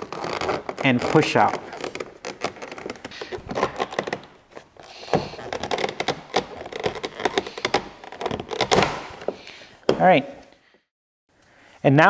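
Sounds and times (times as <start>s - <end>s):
plastic trim clicks and scrapes: 0.0s - 9.4s.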